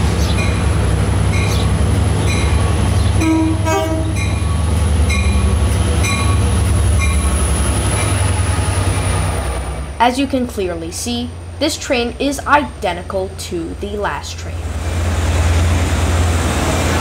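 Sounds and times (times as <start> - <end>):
locomotive bell ringing: 0.0 - 7.4
diesel engine rumbling: 0.0 - 17.0
train horn blast: 3.2 - 4.3.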